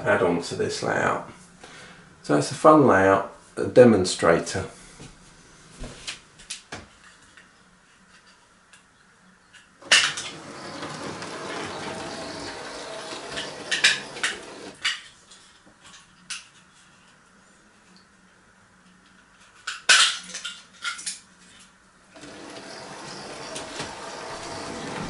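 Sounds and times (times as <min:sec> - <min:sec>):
model train motor whirring: 0:09.8 - 0:14.8, 0:22.2 - 0:25.0
model train wheels rattling: 0:09.8 - 0:15.0, 0:22.2 - 0:25.0.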